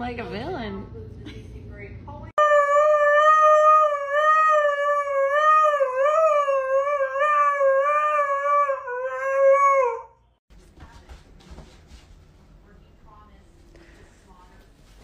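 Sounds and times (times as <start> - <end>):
dog howling: 2.4 - 10.2.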